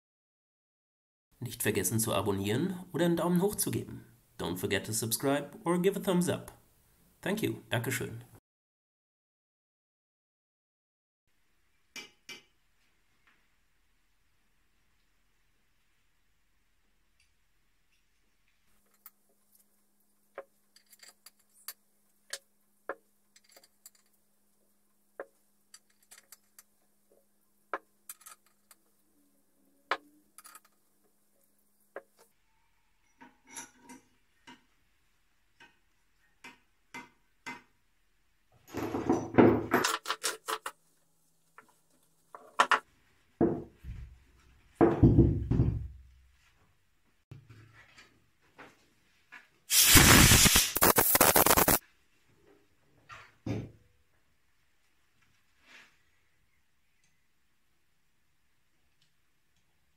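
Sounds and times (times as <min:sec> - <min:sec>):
metal parts and tools clicking: 0:20.7 - 0:21.8, 0:23.4 - 0:24.2, 0:25.7 - 0:26.7, 0:28.1 - 0:28.8, 0:29.9 - 0:30.8.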